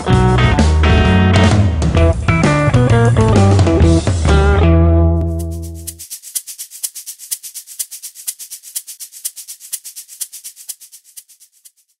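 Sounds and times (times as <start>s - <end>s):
fast high-pitched percussion rhythm: 5.2s - 12.0s.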